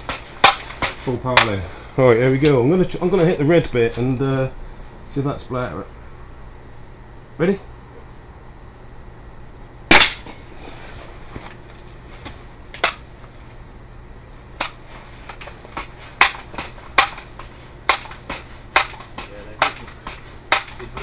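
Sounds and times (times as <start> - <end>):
air rifle shot: 9.9 - 10.4.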